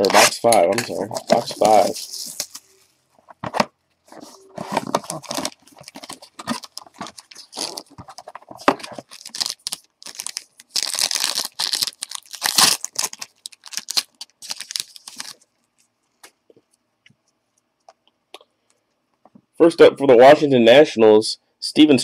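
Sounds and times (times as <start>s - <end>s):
wrapper tearing and crinkling: 0.0s - 2.7s, 4.6s - 15.8s
cards rustling: 0.0s - 15.4s.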